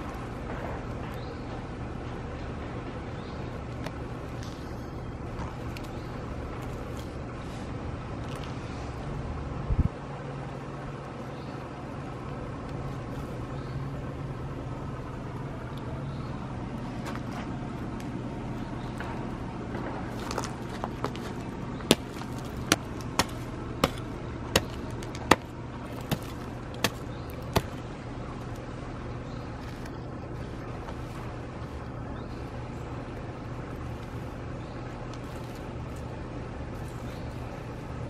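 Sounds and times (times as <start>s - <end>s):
low mechanical hum: 0.0s - 38.0s
digging knocks in hard soil: 18.9s - 28.0s.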